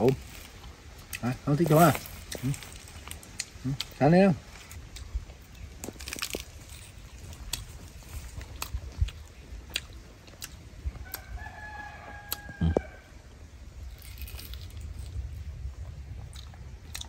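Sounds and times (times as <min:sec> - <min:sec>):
rooster crowing: 0:11.0 - 0:13.2.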